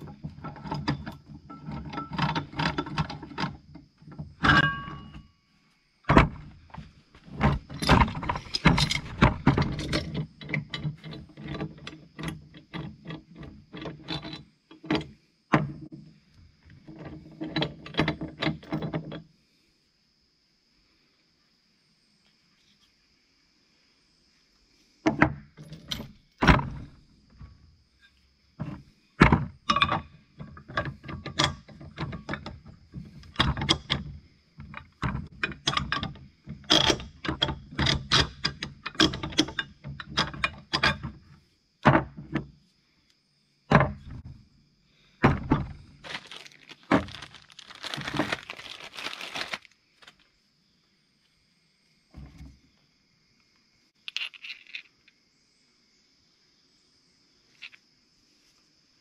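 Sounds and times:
plastic bag rustling: 0:46.0 - 0:50.3.

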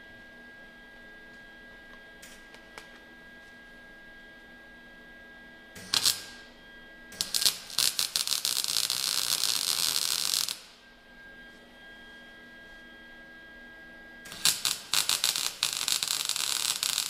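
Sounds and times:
welding arc crackling: 0:05.8 - 0:06.5, 0:07.2 - 0:10.8, 0:14.3 - 0:17.0.

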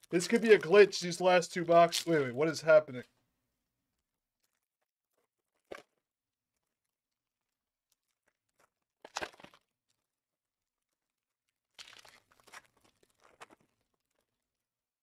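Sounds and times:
card wrappers crinkling and tearing: 0:01.8 - 0:02.3, 0:08.0 - 0:10.0, 0:11.7 - 0:13.9.

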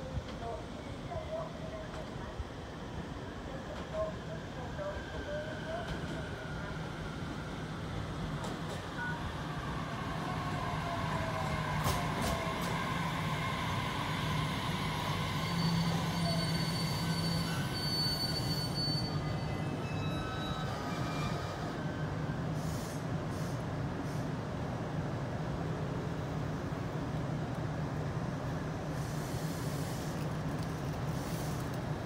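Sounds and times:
falling whine of train: 0:00.0 - 0:32.0
high wheel and brake squeals: 0:15.0 - 0:22.4.

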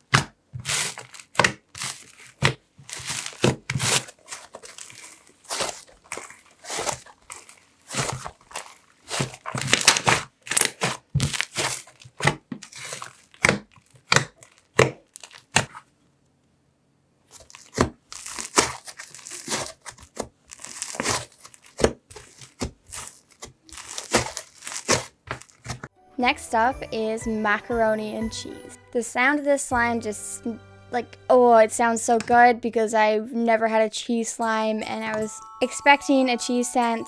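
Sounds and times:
slime crackling and popping: 0:00.1 - 0:15.8, 0:17.3 - 0:25.9.

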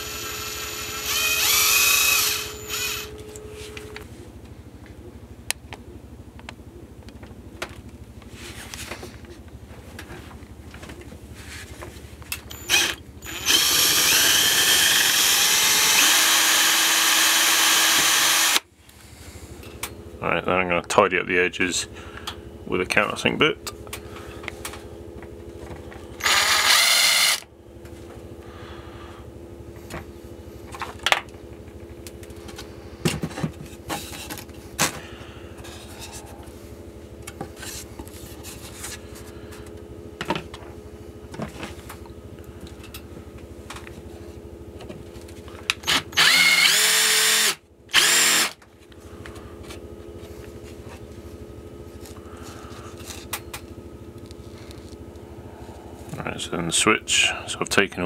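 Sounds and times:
cordless drill running: 0:00.0 - 0:03.4, 0:12.5 - 0:18.7, 0:26.2 - 0:27.5, 0:45.8 - 0:48.6.

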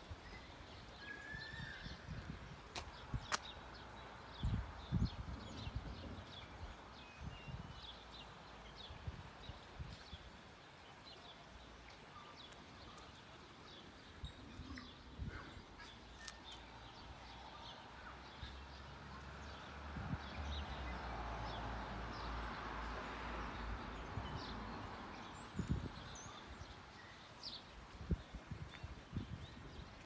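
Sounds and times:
small birds chirping: 0:09.9 - 0:18.8.

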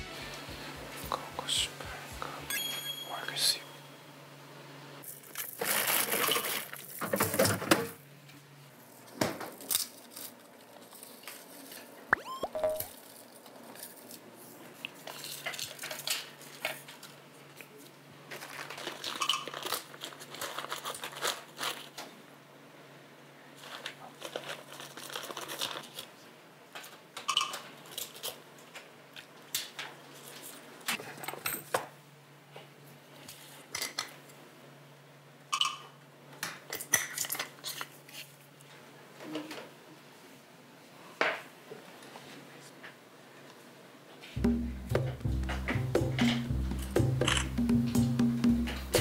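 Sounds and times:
crinkling: 0:05.1 - 0:07.2, 0:08.9 - 0:12.0, 0:12.8 - 0:22.2, 0:23.6 - 0:26.2.

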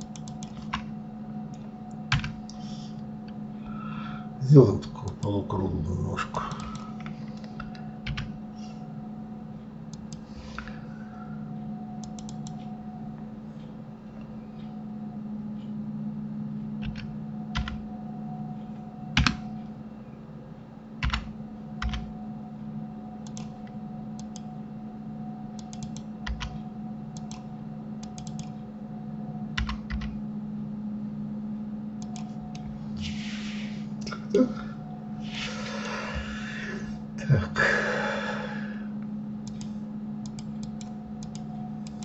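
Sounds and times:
computer keyboard keys clicking: 0:00.0 - 0:00.9, 0:01.5 - 0:02.6, 0:06.5 - 0:08.4, 0:12.0 - 0:12.6, 0:16.8 - 0:17.8, 0:19.2 - 0:19.5, 0:21.0 - 0:22.1, 0:23.2 - 0:24.5, 0:25.6 - 0:26.6, 0:27.2 - 0:28.6, 0:29.6 - 0:30.2, 0:32.0 - 0:32.7, 0:39.4 - 0:42.0
low electrical hum: 0:00.0 - 0:42.0.

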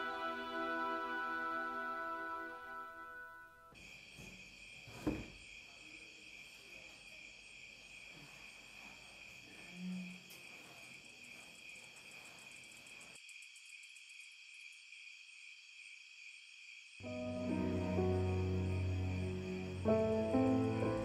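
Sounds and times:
crickets chirring: 0:03.7 - 0:21.0
soft thump: 0:05.0 - 0:05.3.

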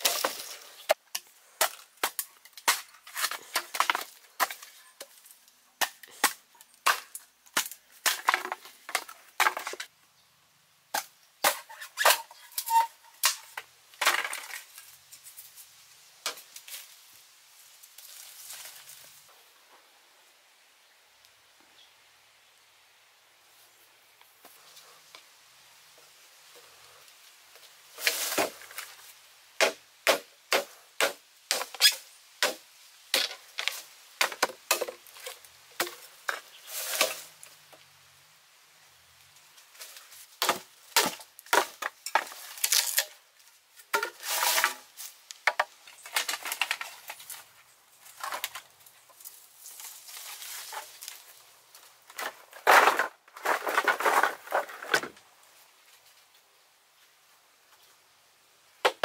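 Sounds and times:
bamboo cracking and splitting: 0:00.0 - 0:09.9, 0:10.9 - 0:14.9, 0:27.5 - 0:37.8, 0:39.7 - 0:55.3
knife chopping bamboo: 0:29.6 - 0:31.8.

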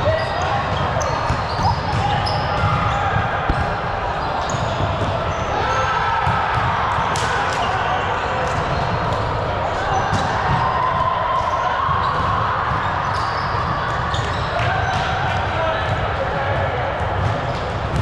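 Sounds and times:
ball bouncing: 0:01.3 - 0:05.2.

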